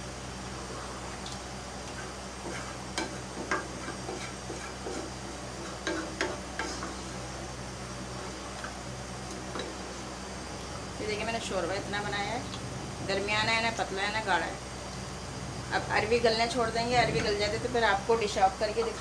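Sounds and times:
steady low hum: 0.0s - 19.0s
ladle stirring curry in a pot: 1.8s - 7.1s.

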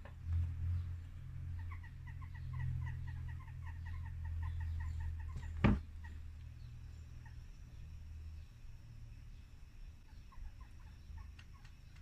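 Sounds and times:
steady low hum: 0.0s - 12.0s
bird calling: 1.5s - 6.3s, 10.0s - 12.0s.

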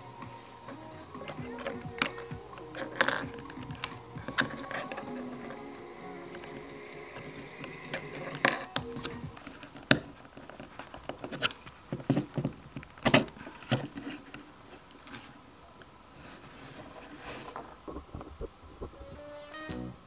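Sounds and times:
plastic bricks clicking: 1.2s - 5.6s.

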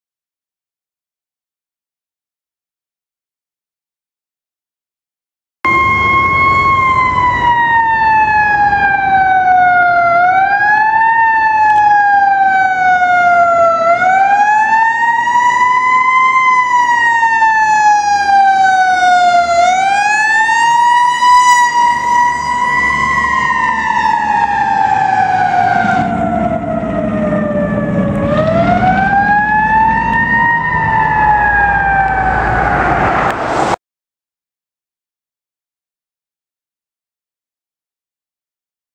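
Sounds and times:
fire engine siren wailing: 5.7s - 33.8s.

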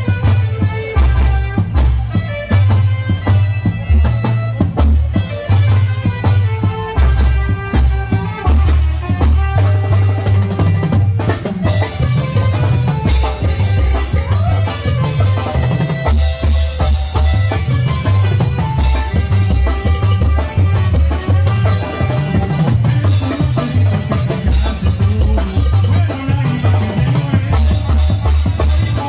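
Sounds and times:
drum kit beat: 0.0s - 29.0s
keyboard melody: 0.0s - 29.0s
saxophone melody: 0.0s - 29.0s.

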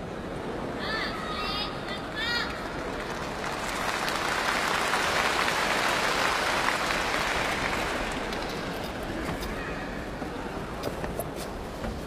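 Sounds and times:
arena crowd applauding: 2.4s - 9.1s.

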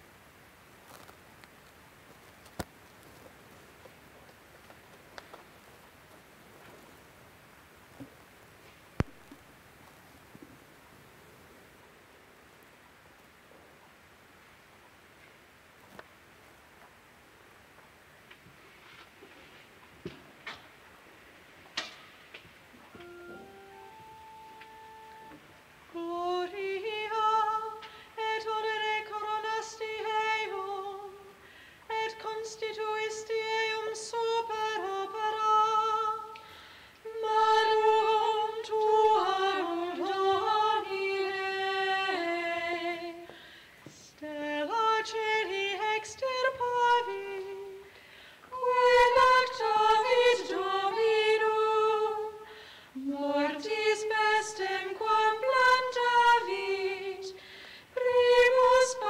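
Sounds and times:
high voice singing unaccompanied: 37.1s - 43.3s, 48.5s - 52.4s, 53.0s - 57.4s, 58.0s - 59.0s.

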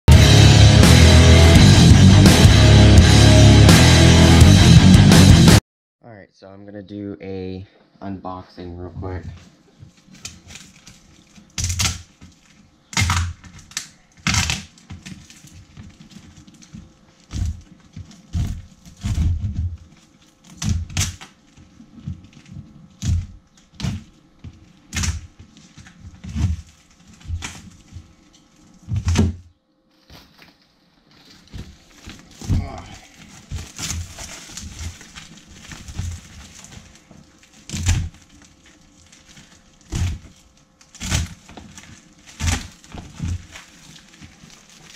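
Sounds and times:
cardboard box knocks and thumps: 14.8s - 19.9s.

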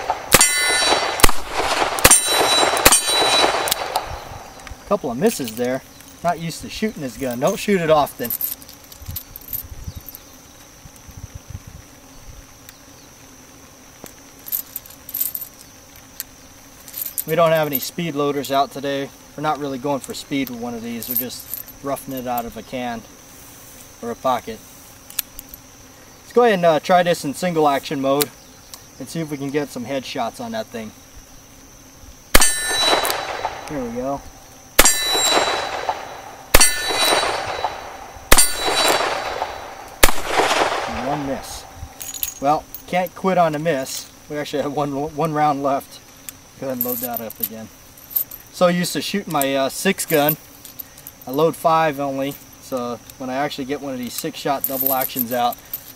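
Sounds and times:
bullet clanging on steel target: 0.0s - 4.6s, 32.4s - 34.0s, 34.8s - 42.4s
metallic clinks of cartridges: 0.0s - 6.1s, 7.3s - 10.2s, 20.4s - 22.5s, 32.4s - 42.9s, 46.3s - 48.5s, 54.1s - 55.9s
high insect drone: 0.0s - 55.9s
revolver shots: 34.8s - 41.0s.

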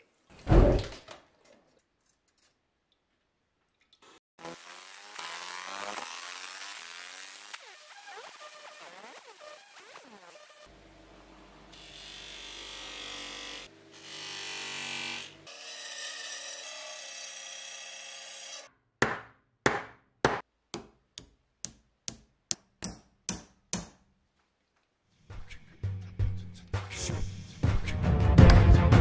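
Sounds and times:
sharp knocks: 19.0s - 21.0s.

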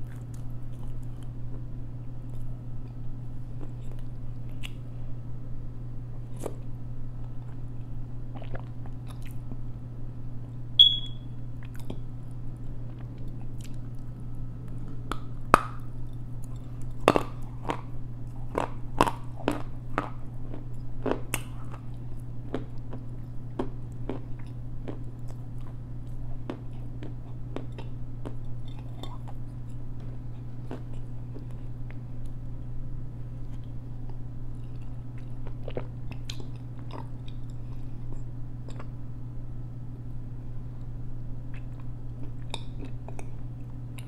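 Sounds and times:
crunchy chewing: 0.0s - 4.9s, 6.2s - 9.6s, 11.6s - 32.4s, 33.3s - 39.0s, 41.5s - 44.0s
steady low hum: 0.0s - 44.0s
brief high ping: 10.8s - 11.2s.

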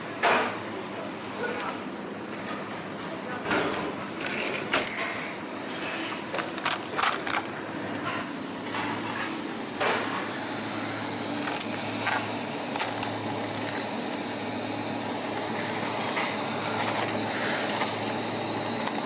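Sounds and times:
refrigerated display case hum: 0.0s - 19.0s
plastic packs clicking and crinkling: 6.3s - 7.6s, 11.4s - 13.8s.

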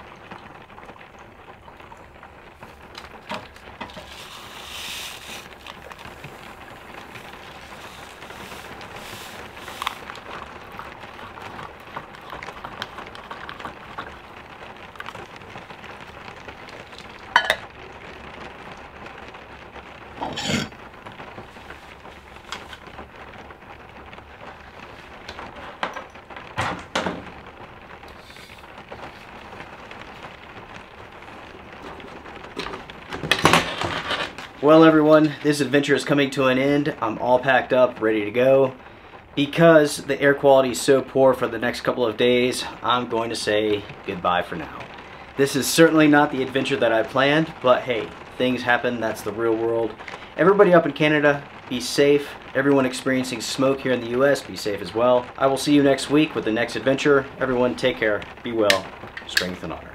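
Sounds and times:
steady low hiss: 0.0s - 59.9s
spoon stirring in metal tumbler: 17.3s - 17.6s
cups and utensils clinking: 17.4s - 17.6s.

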